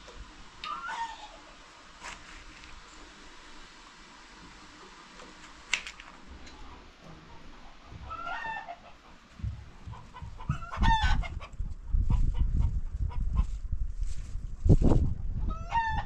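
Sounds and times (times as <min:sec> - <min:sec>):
rooster crowing: 0:00.7 - 0:01.4, 0:08.0 - 0:08.8, 0:10.4 - 0:11.3, 0:15.5 - 0:16.0
gusty low rumble: 0:09.4 - 0:15.6.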